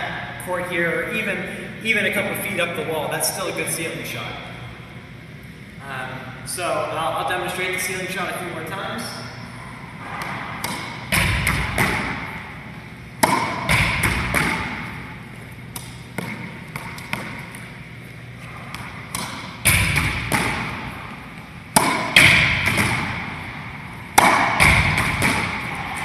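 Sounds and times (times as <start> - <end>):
racquetball hits with echo: 9.8 - 26.0
ball rebounding off walls: 10.3 - 12.4, 13.2 - 14.9, 18.7 - 21.0, 21.7 - 23.4, 24.1 - 25.7.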